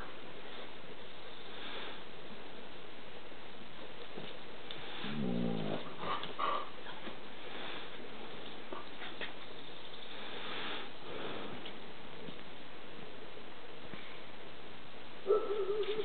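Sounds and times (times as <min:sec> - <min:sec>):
dogs scuffling: 0:05.8 - 0:09.9.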